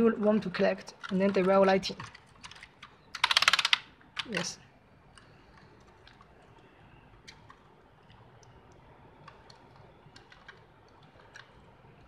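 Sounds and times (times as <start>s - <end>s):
mechanical keyboard clicks: 1.0s - 4.5s, 9.2s - 11.6s.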